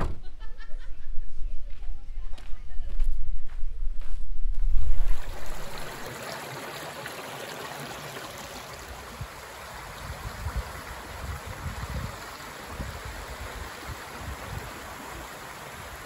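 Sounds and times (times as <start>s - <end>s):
flowing water: 4.9s - 16.0s.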